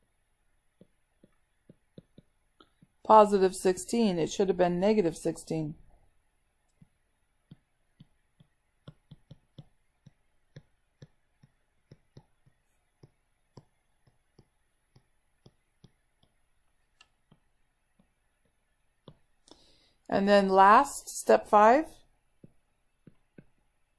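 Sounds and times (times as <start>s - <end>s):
stylus tapping on tablet screen: 0.7s - 3.1s, 6.7s - 19.7s, 22.3s - 23.8s.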